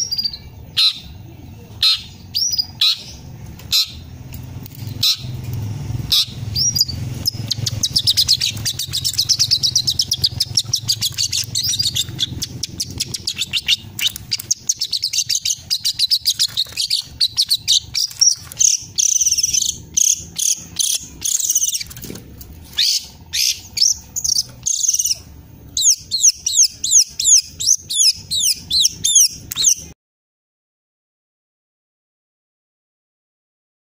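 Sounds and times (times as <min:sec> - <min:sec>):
bird singing: 0:00.0 - 0:22.0, 0:22.7 - 0:30.0.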